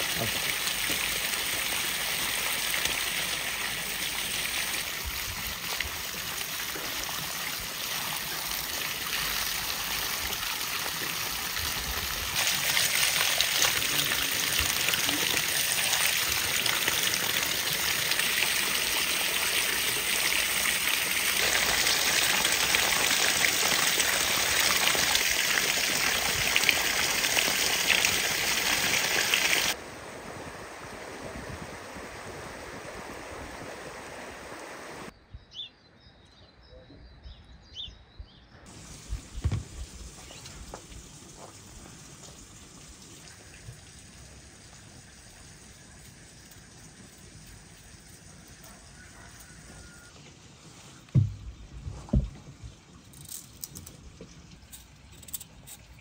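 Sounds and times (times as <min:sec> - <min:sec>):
water splashing into colander: 0:05.4 - 0:29.8
steady hiss: 0:38.7 - 0:48.2.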